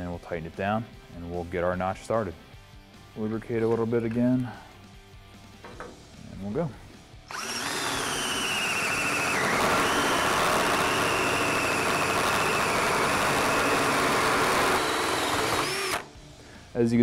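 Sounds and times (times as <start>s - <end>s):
electric drill whine cutting steel: 7.3s - 16.1s.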